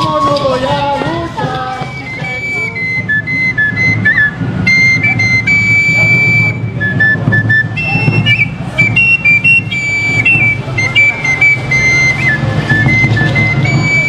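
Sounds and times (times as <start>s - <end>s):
wooden flute melody: 0.0s - 14.0s.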